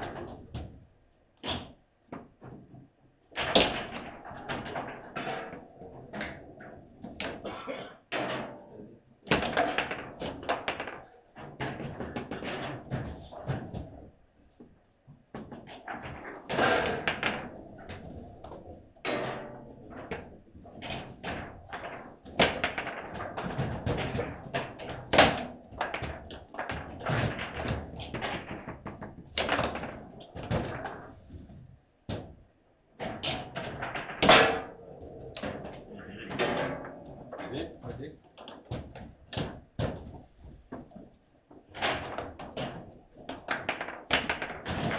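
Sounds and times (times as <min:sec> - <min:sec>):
table football ball clacks: 0:09.2 - 0:31.5, 0:33.0 - 0:44.9.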